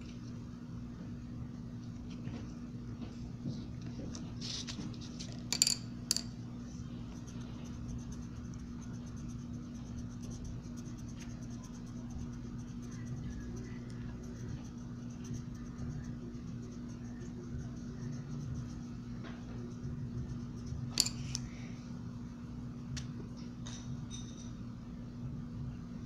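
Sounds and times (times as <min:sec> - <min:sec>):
low electrical hum: 0:00.0 - 0:26.0
colouring tool scratching on paper: 0:07.0 - 0:20.9.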